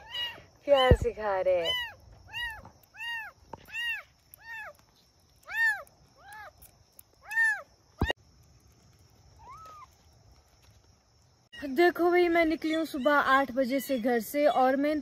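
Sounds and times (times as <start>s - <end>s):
kittens mewing: 0.0s - 0.6s, 1.5s - 8.2s.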